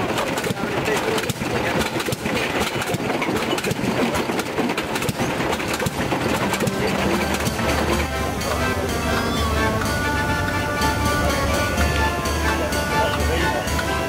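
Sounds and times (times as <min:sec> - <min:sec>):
stone crusher clattering: 0:00.0 - 0:08.4
music with held notes: 0:05.9 - 0:14.0.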